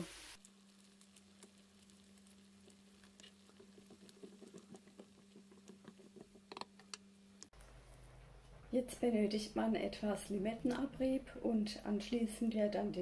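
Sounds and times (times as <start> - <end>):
low steady hum: 0.0 - 13.0
whisk stirring curry in pan: 0.5 - 6.5.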